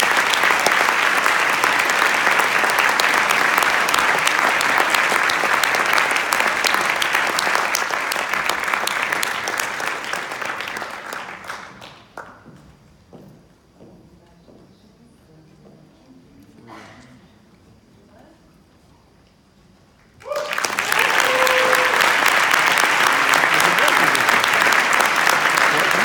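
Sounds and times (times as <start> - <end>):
audience applauding: 0.0 - 12.3, 20.2 - 26.0.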